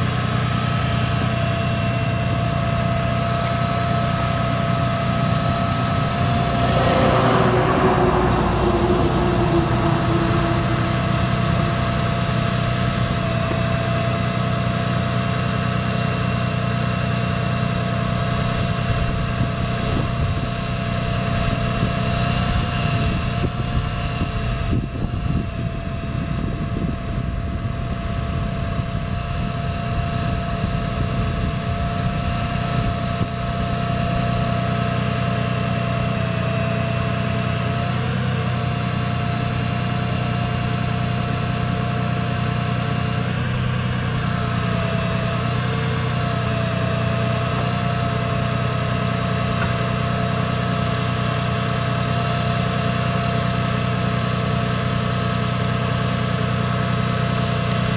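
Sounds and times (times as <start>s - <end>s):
diesel engine idling: 0.0s - 57.9s
wavering whine: 0.8s - 15.2s.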